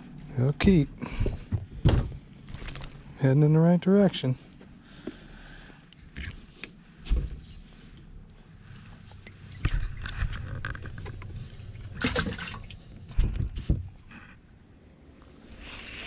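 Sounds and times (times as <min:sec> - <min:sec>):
knocks and bumps in boat: 0:01.1 - 0:02.2.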